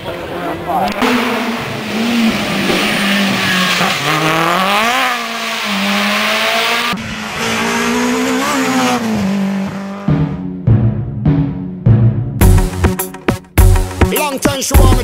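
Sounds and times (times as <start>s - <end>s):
rally car engine revving: 0.1s - 11.6s.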